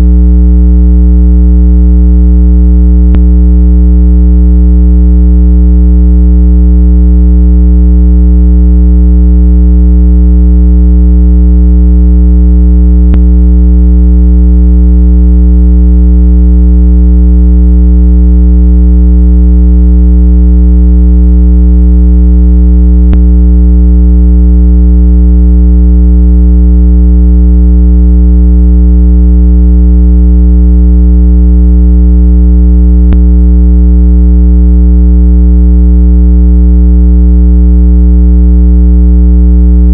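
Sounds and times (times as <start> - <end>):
synthetic low tone through phone speaker: 0.0 - 0.3, 13.0 - 13.4, 23.1 - 23.4, 33.1 - 33.3.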